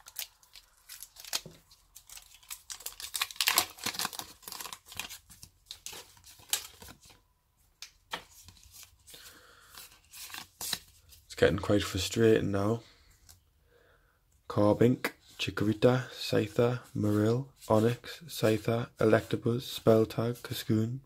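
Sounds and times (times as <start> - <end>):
foil wrapper crinkling and tearing: 0.0 - 7.0
cards rustling and clicking: 0.0 - 7.2, 7.8 - 11.2.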